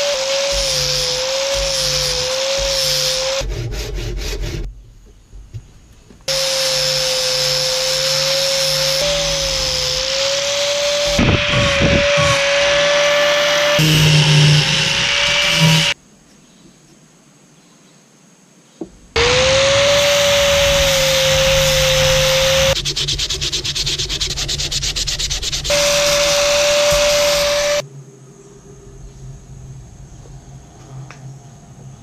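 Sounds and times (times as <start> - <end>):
angle grinder grinding wood: 0.0 - 4.7, 6.3 - 16.0, 19.2 - 27.8.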